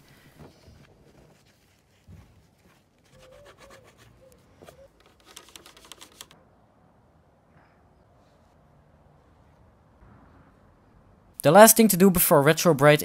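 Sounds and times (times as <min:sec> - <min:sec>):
cloth scrubbing plastic: 0:00.0 - 0:06.4
quick clicks: 0:04.7 - 0:06.4.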